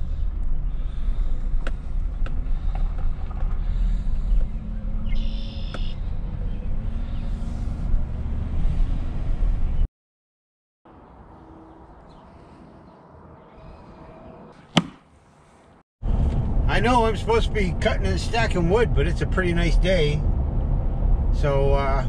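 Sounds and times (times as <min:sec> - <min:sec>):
engine and tyre rumble: 0:00.0 - 0:09.9, 0:14.6 - 0:22.0.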